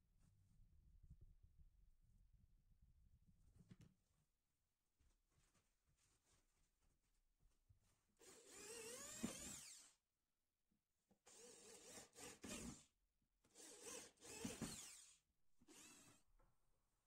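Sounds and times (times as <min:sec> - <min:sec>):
power drill boring into wood: 0:08.2 - 0:10.0, 0:11.3 - 0:12.9, 0:13.6 - 0:16.2.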